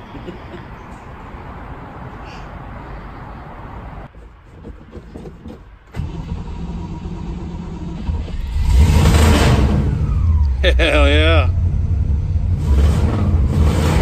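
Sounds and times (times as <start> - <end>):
car engine starting and revving: 5.9 - 14.0.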